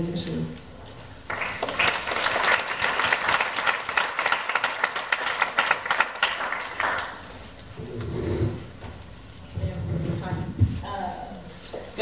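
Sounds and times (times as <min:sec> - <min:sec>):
audience applause: 0:01.3 - 0:07.3.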